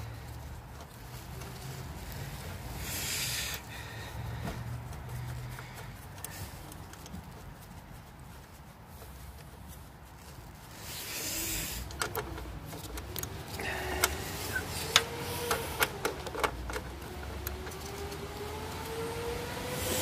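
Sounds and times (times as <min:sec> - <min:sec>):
hand tools clicking and clinking: 0:11.0 - 0:18.8.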